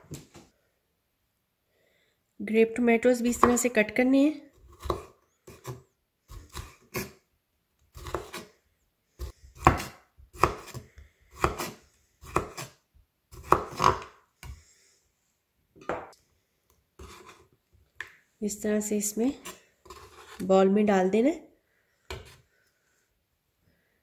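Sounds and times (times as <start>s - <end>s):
knife cutting on wooden board: 4.6s - 7.2s, 7.9s - 8.6s, 9.2s - 14.6s, 17.0s - 17.5s, 19.4s - 20.5s.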